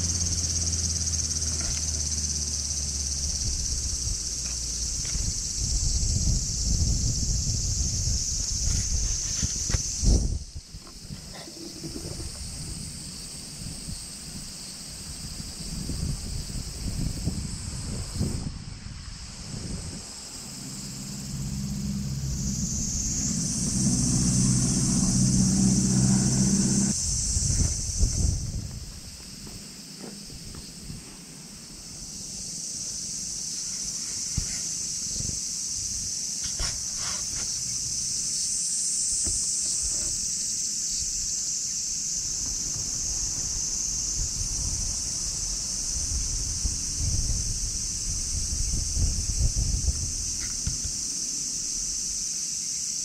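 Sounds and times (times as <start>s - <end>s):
low engine hum: 0.0s - 13.8s, 15.2s - 33.2s, 42.0s - 52.2s
high insect drone: 0.0s - 53.0s
cat rubbing against camera: 36.5s - 37.8s.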